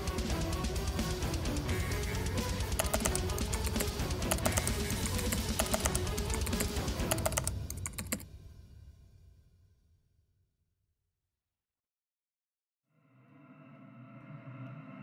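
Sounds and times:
rock music with guitar: 0.0 - 7.2
rapid sharp clicking: 0.0 - 8.2.

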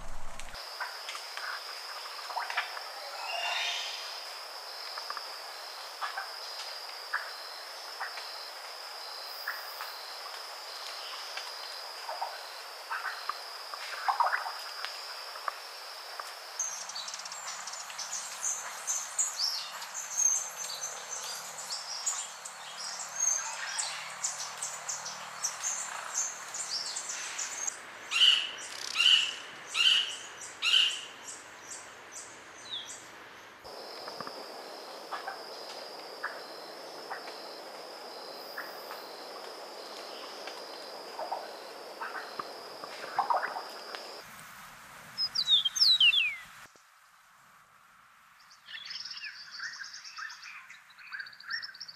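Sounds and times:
high insect drone: 0.0 - 31.0, 33.7 - 44.3
birds chirping: 45.2 - 46.5.

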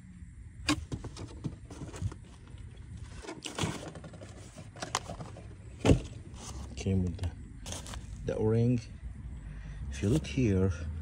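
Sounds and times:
cardboard box handling: 0.7 - 6.8, 7.7 - 8.2.

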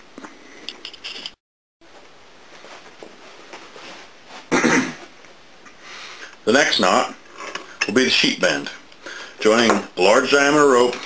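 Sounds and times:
person coughing: 4.5 - 5.1.

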